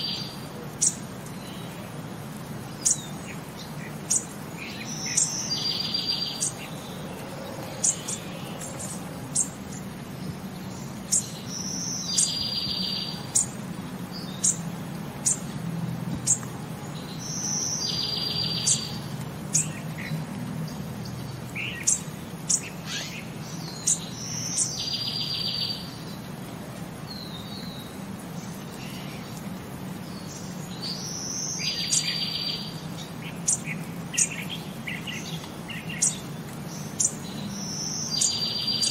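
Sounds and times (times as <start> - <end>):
bird chirps: 2.8 - 15.5, 16.2 - 20.1, 20.7 - 26.2, 30.1 - 38.9.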